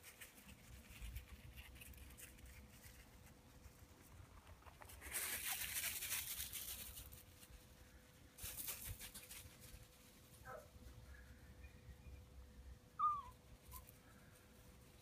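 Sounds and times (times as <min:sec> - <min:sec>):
small dog whimpering: 0:13.0 - 0:13.9.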